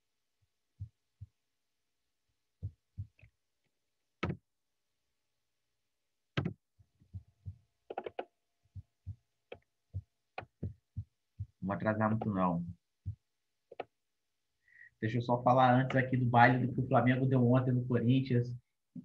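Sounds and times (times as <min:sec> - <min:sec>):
soft knocks and clicks: 0:04.2 - 0:04.4, 0:06.4 - 0:08.3.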